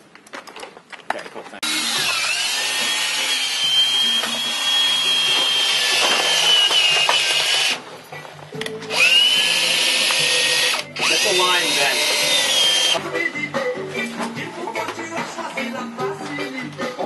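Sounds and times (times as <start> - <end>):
cordless drill driving screw: 1.6 - 7.8, 8.9 - 13.0.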